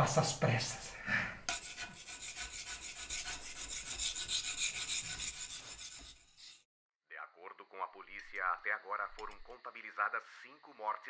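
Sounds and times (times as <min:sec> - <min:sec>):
hand tools rasping on stone: 0:01.5 - 0:06.7.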